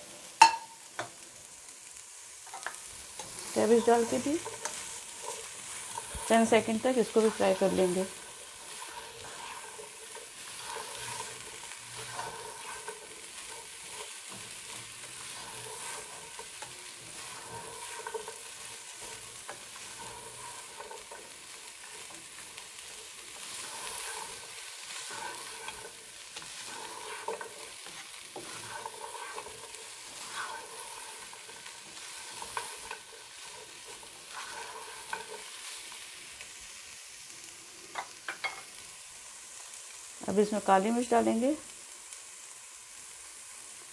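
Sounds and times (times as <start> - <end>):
food sizzling in a pot: 0.0 - 43.9
spatula scraping a pot: 2.6 - 36.0.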